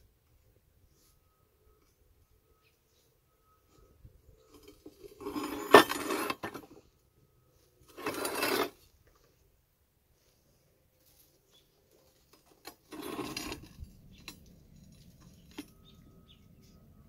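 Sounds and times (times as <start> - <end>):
metal clinking and scraping: 4.4 - 6.8, 7.8 - 8.9, 11.9 - 16.4.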